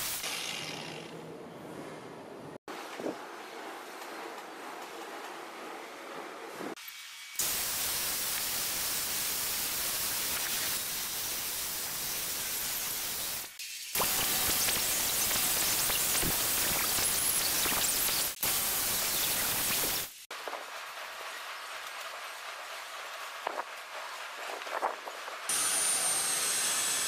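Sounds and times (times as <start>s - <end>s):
grinder polishing metal hiss: 7.0s - 20.1s.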